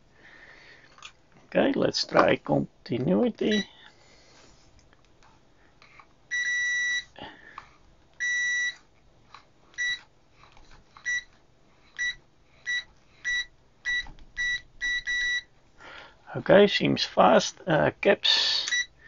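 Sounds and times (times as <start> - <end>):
multimeter continuity beeps: 3.5 - 3.8, 6.3 - 7.2, 8.2 - 8.8, 9.8 - 10.0, 11.0 - 11.3, 12.0 - 15.5, 18.6 - 19.0.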